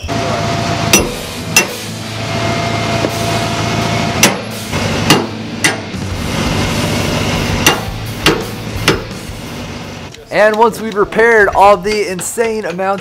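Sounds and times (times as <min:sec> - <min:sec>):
hammer striking metal: 0:00.0 - 0:06.1, 0:06.8 - 0:09.3
steady low hum: 0:00.0 - 0:10.1.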